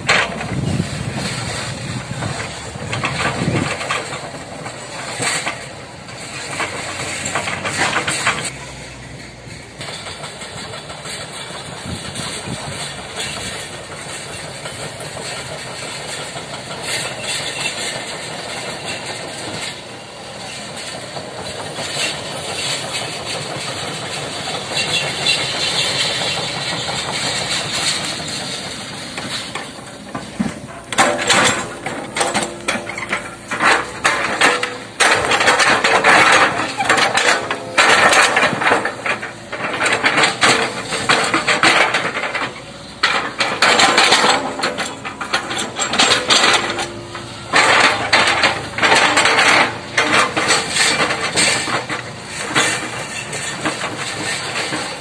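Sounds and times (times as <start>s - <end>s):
excavator diesel engine running: 0.0s - 55.0s
logs clattering onto a pile: 6.5s - 8.5s, 29.2s - 55.0s.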